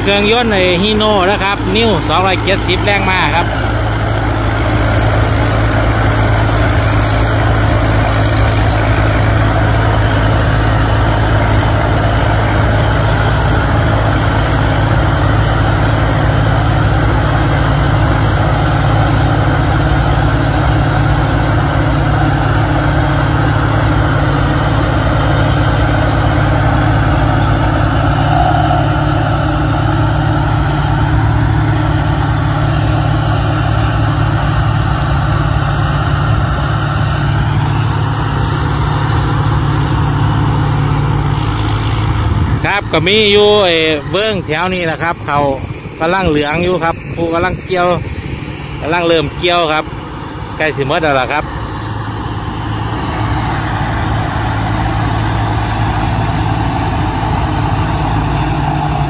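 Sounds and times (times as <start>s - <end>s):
diesel engine running under load: 0.0s - 59.0s
thin high whine: 18.3s - 35.8s.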